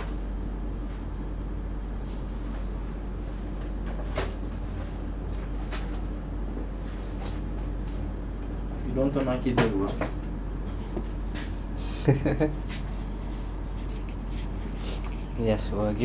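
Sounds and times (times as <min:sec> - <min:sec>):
low machine hum: 0:00.0 - 0:16.0.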